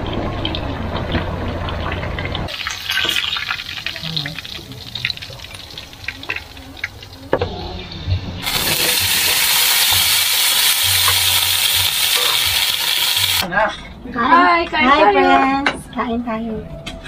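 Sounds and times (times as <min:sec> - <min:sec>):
vegetables sizzling in a wok: 0:02.5 - 0:07.4, 0:08.4 - 0:13.4
metal spatula stirring: 0:08.5 - 0:13.4.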